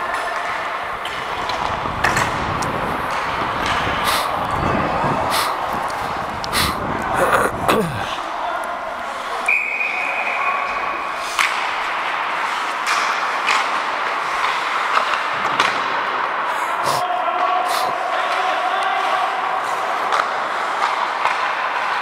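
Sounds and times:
hockey sticks and puck clacks: 0.0 - 7.1, 8.1 - 22.0
distant voices: 0.0 - 12.7
arena noise: 0.0 - 22.0.

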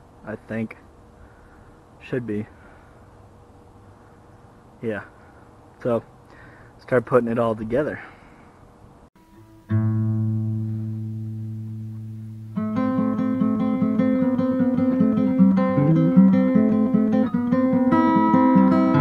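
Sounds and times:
acoustic guitar chord ringing: 9.2 - 19.0
acoustic guitar strumming: 9.2 - 19.0.

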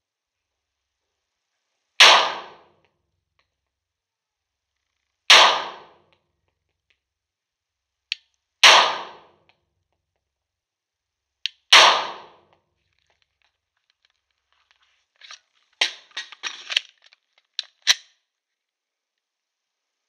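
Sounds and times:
pistol shots with echo: 2.0 - 2.7, 5.3 - 6.0, 8.6 - 9.4, 11.7 - 12.4
metallic clicks of pistol handling: 11.5 - 11.7, 12.9 - 18.2.

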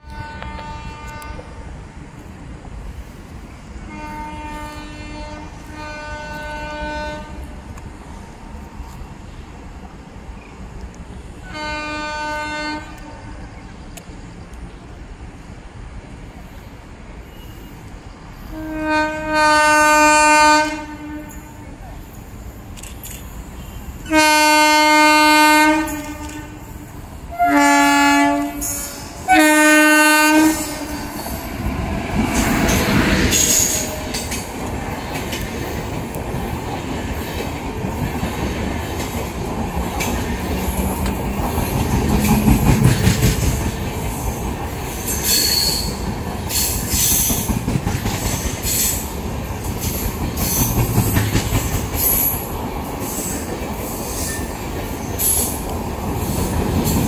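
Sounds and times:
locomotive horn blasts: 0.0 - 1.6, 3.9 - 7.6, 11.4 - 13.4, 18.5 - 21.8, 23.6 - 31.2
train wheels rumbling and clacking: 0.0 - 57.0.

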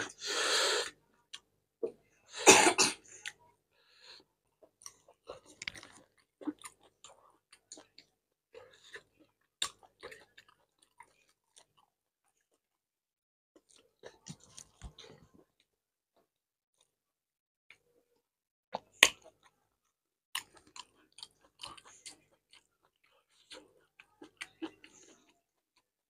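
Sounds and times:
man chewing food: 4.6 - 12.6, 13.6 - 15.7, 20.3 - 25.9.

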